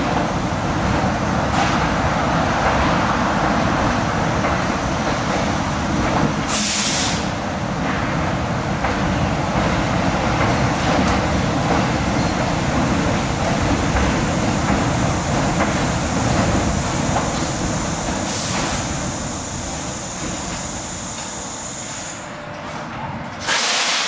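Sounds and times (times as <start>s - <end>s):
subway train pulling out: 0.0s - 24.0s
air hiss: 6.5s - 7.4s, 16.8s - 22.2s, 23.4s - 24.0s.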